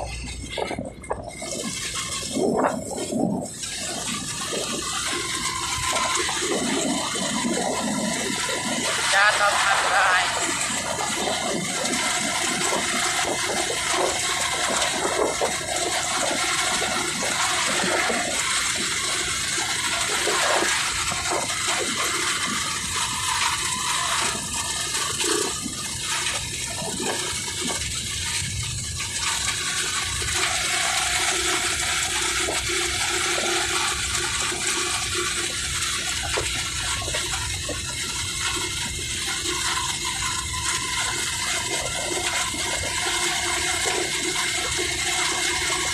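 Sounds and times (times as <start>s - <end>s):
wind and road rushing noise: 0.0s - 41.0s.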